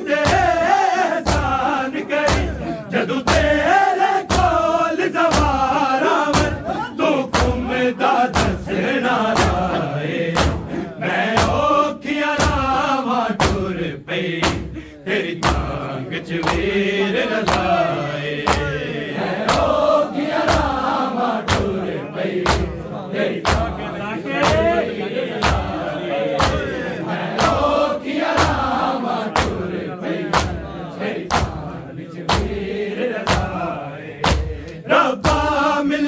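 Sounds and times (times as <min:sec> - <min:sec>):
chest beating rhythm: 0:00.0 - 0:36.0
men chanting: 0:00.0 - 0:36.0.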